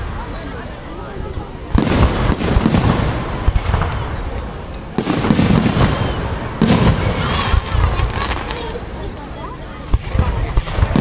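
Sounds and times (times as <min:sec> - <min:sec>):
firework shells booming: 0:01.7 - 0:08.9, 0:09.9 - 0:11.0.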